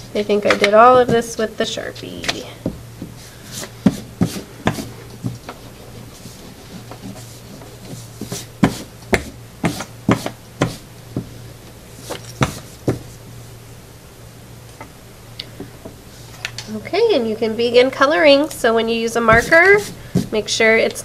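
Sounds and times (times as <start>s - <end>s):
steady low hum: 0.0s - 21.0s
eraser scrubbing on paper: 3.1s - 10.8s, 19.3s - 20.4s.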